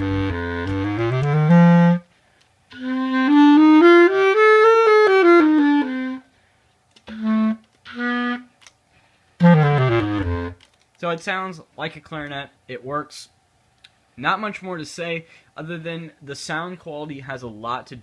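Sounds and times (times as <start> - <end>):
bass clarinet notes: 0.0 - 2.1, 2.7 - 6.3, 7.0 - 8.6, 9.4 - 10.6.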